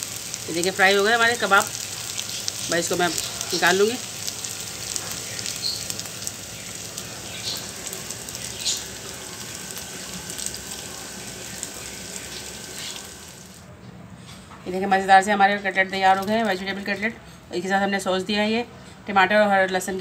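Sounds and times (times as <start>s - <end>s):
hot oil sizzling in a frying pan: 0.0s - 13.7s.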